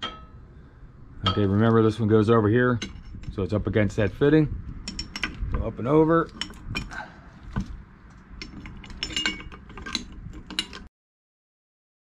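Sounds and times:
metal clicks and clinks: 4.8 - 5.4, 6.3 - 7.0, 8.4 - 10.9.

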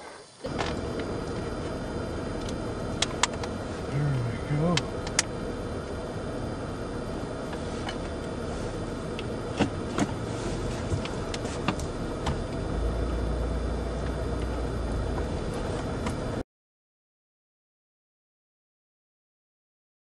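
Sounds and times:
car engine and road noise: 0.3 - 16.4
low rumble: 0.5 - 16.4.

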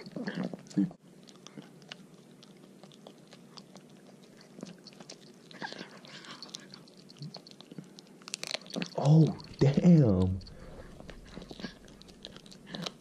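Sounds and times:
dog chewing bones: 1.2 - 13.0.

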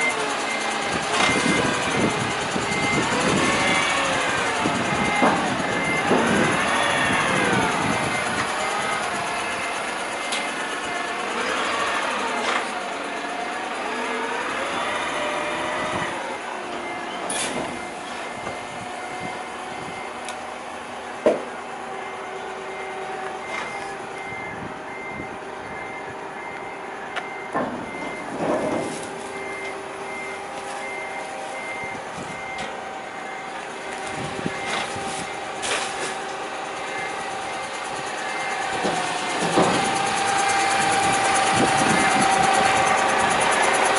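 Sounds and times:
warning beeper: 0.0 - 11.0, 21.4 - 35.5
rubbish truck idling: 0.0 - 43.9.

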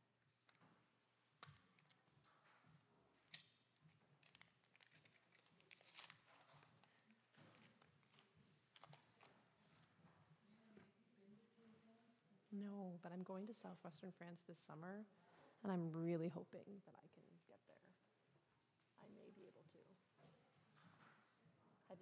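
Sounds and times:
faint clicks and rustles: 0.4 - 11.0.

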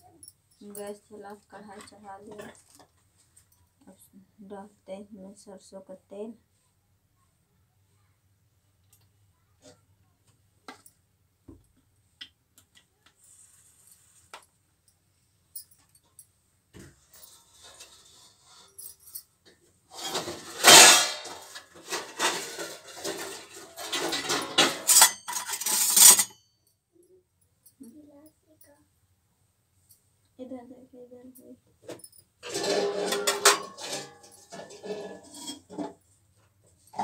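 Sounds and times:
metal utensils clattering: 19.9 - 26.4, 32.4 - 36.0.

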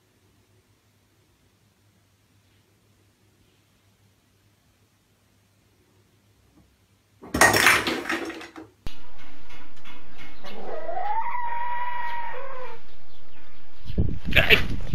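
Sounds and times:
cat meowing: 10.6 - 12.8.

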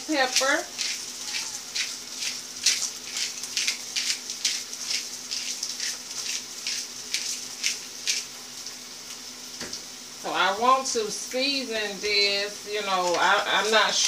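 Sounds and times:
faint steady hum: 0.0 - 14.0
pepper mill grinding: 0.2 - 5.0.

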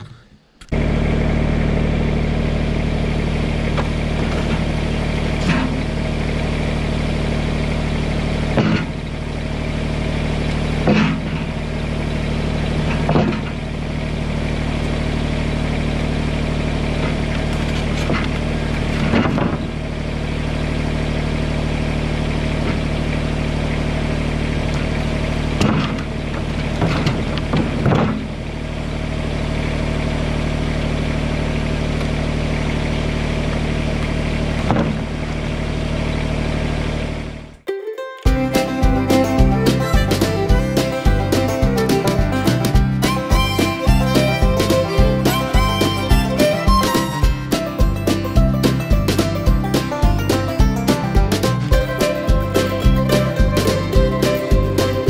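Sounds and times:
tractor diesel engine idling: 0.0 - 37.6, 38.3 - 55.0
wooden knocks and clatters: 19.0 - 19.7, 25.6 - 28.3.

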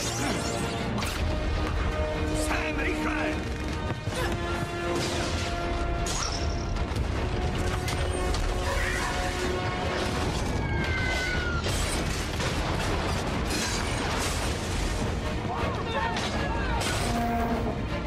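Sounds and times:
orchestral music: 0.0 - 18.0
explosions: 4.9 - 15.2.

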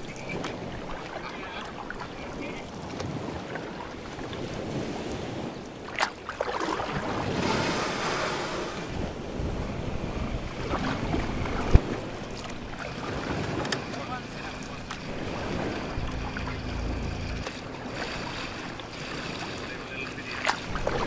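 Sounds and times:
water lapping against boat hull: 0.0 - 21.0
wind buffeting microphone: 6.8 - 19.6.

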